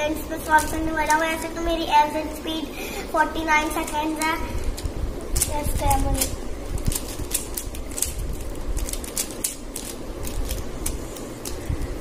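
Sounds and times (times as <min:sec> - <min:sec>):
puzzle cube twisting clicks: 0:03.8 - 0:12.0.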